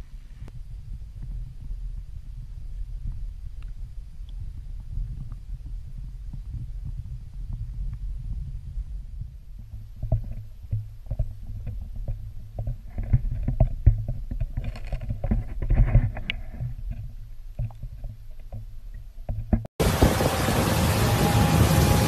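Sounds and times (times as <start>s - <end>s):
muffled underwater rumble: 0.0s - 22.0s
underwater clicks and knocks: 9.6s - 19.7s.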